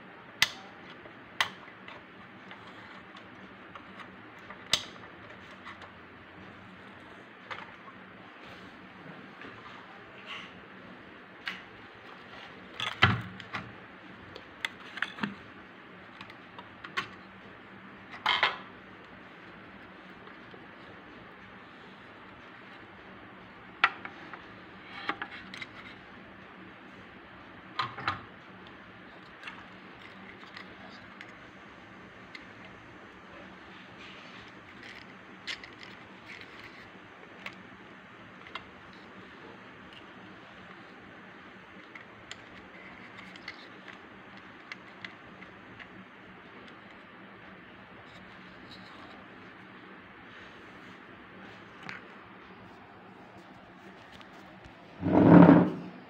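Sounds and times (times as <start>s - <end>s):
clicks and knocks of toy parts: 34.0s - 37.7s, 41.7s - 46.0s.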